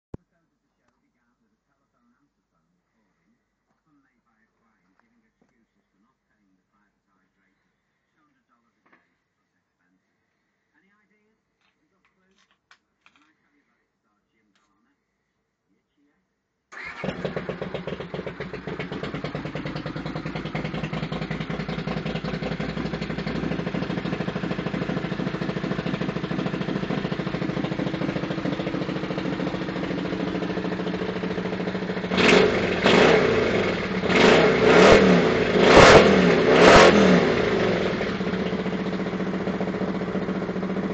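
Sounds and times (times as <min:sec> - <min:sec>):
motorcycle engine idling and revving: 0:16.8 - 0:40.9.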